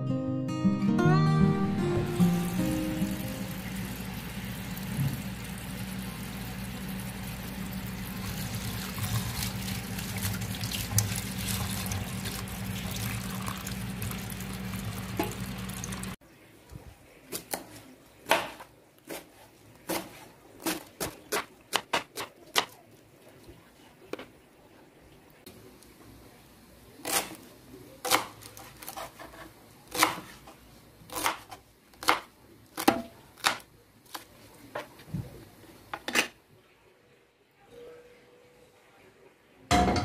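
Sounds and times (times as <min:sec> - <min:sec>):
tap water pouring into bowl: 0:07.6 - 0:16.2.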